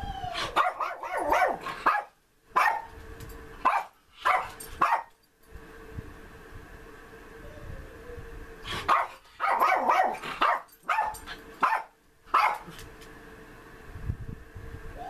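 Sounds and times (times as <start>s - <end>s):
small dog barking: 0.4s - 3.0s, 3.6s - 5.1s, 8.8s - 12.8s.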